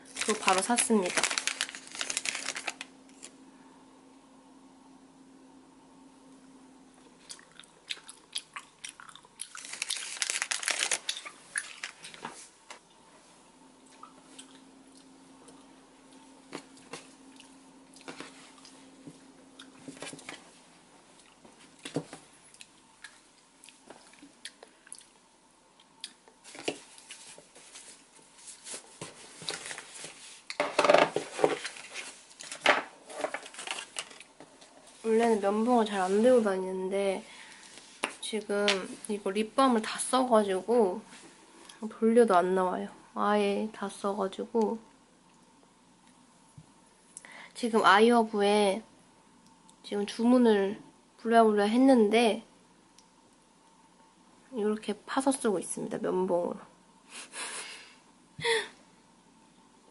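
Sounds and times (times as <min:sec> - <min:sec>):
plastic packet crinkling: 0:00.0 - 0:03.4, 0:09.4 - 0:12.3, 0:31.2 - 0:34.3.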